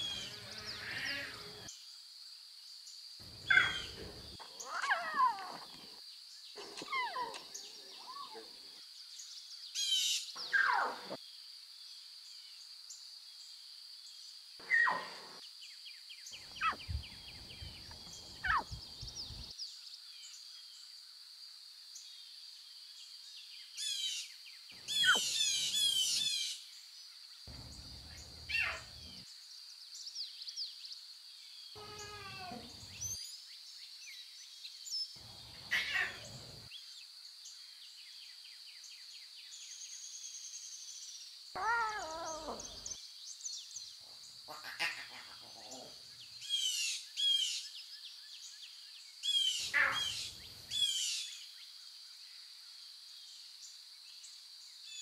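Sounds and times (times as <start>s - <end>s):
lion cubs mewing: 0.0s - 1.7s, 3.3s - 6.0s, 6.6s - 8.7s, 16.6s - 18.8s, 24.9s - 26.3s, 28.4s - 29.2s, 31.8s - 33.2s, 35.4s - 36.7s, 41.6s - 43.0s, 44.5s - 46.0s, 49.6s - 50.4s
rapid high bird chirping: 3.4s - 5.6s, 16.4s - 19.5s, 24.8s - 26.6s, 27.5s - 29.2s.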